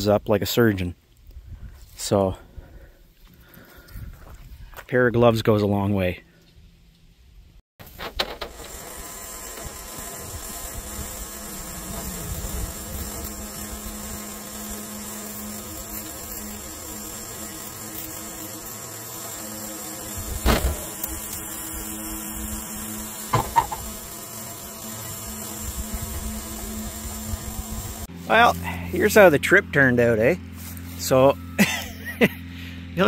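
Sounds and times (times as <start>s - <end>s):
electric winch motor humming: 8.2s - 29.6s.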